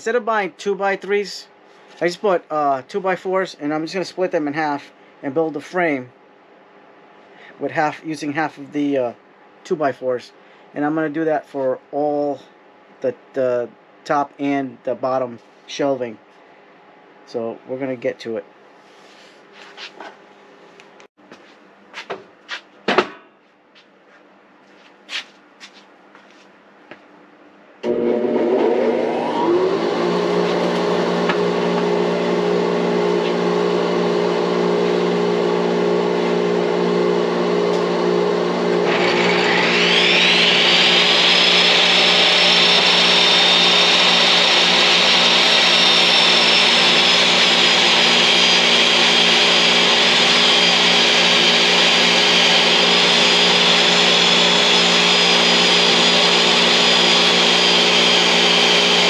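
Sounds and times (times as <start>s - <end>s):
dust collector motor hum: 27.8s - 59.0s
table saw motor whine: 27.8s - 59.0s.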